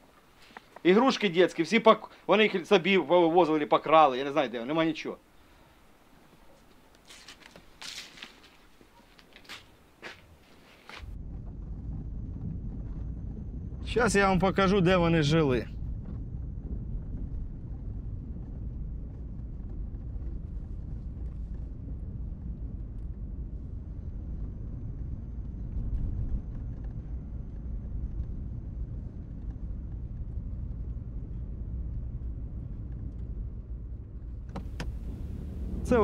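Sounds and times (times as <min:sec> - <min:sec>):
car engine and tyres rumbling: 0:30.9 - 0:36.0.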